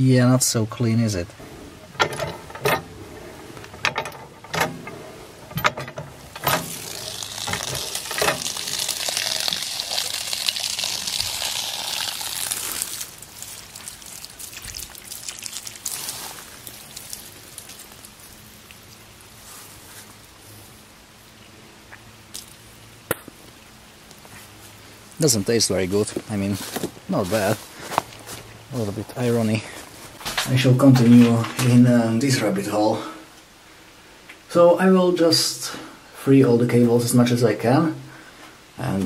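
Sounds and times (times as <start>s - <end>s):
water gushing and pouring: 6.4s - 18.6s.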